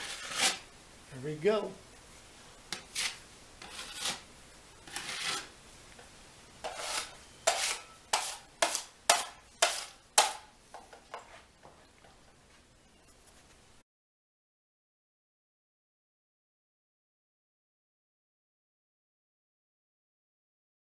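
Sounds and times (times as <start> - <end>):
putty knife scraping drywall: 0.0 - 0.7, 2.7 - 5.5, 6.6 - 10.5.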